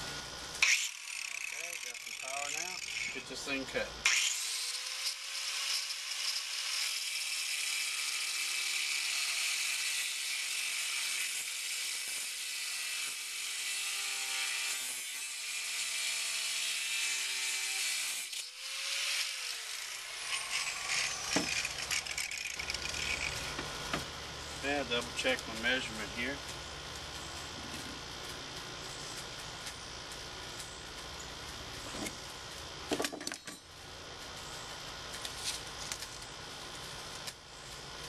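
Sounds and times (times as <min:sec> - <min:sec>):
angle grinder cutting metal: 0:00.6 - 0:24.0.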